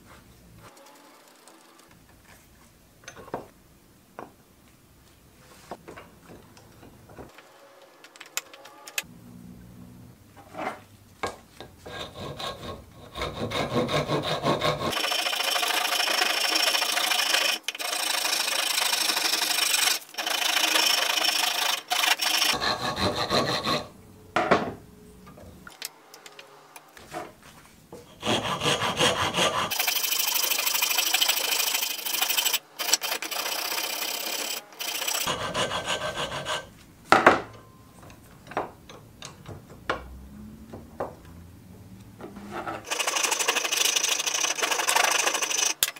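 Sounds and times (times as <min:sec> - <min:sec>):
rasp filing wood: 0:11.8 - 0:23.9, 0:28.1 - 0:36.7.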